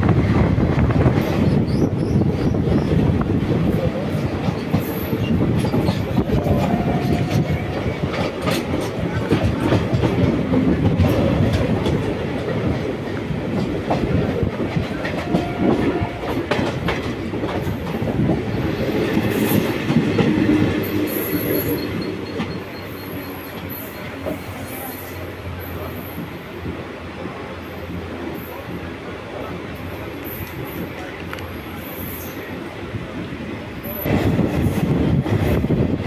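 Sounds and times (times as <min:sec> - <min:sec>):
train wheels clattering on rails: 0:00.0 - 0:36.0
high-pitched wheel squeals: 0:20.8 - 0:25.2.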